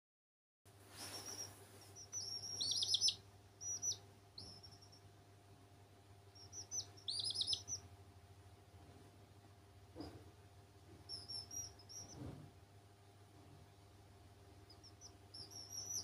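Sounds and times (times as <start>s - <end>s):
chicks peeping: 1.0s - 5.2s, 6.2s - 8.0s, 10.9s - 12.5s, 14.5s - 16.0s.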